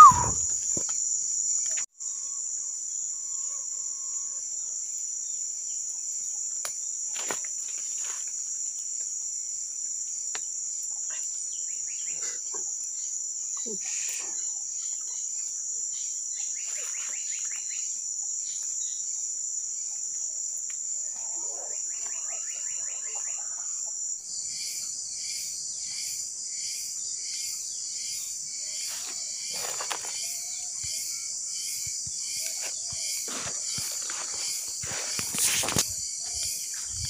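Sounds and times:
insect buzzing drone: 0.0 - 4.6, 24.3 - 37.0.

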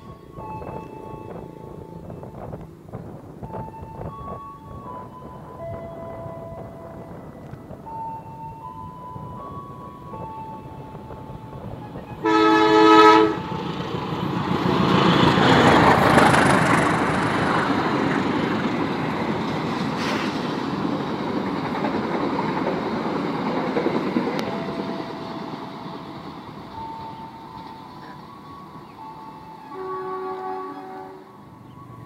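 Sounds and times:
train rumbling past: 0.0 - 32.0
train horn blast: 11.6 - 13.7, 29.6 - 31.4
train wheels clattering on rails: 13.2 - 29.0.

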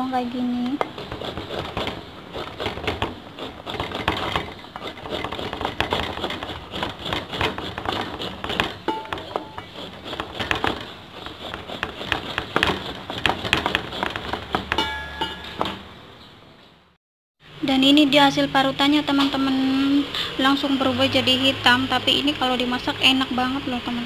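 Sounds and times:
grater scraping strokes: 0.8 - 14.8.

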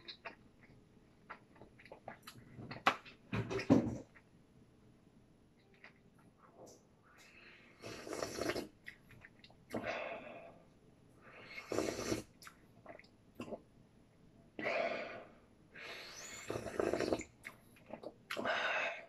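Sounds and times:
person slurping soup: 7.8 - 8.8, 11.4 - 12.4, 15.8 - 18.6.

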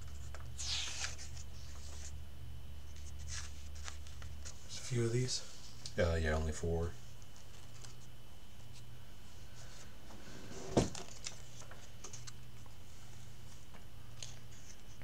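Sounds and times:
steady low hum: 0.0 - 15.0
paper rustling: 0.1 - 2.2.

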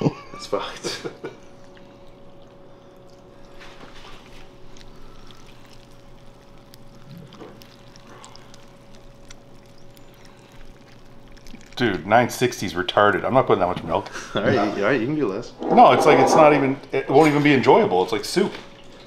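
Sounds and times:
faint steady hum: 0.0 - 19.0
milk pouring onto cereal: 0.4 - 14.1.

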